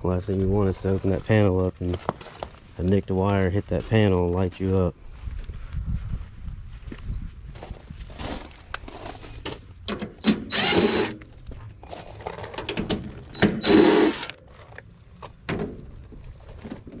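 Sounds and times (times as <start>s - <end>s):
impact driver running: 10.2s - 11.2s, 13.4s - 14.4s.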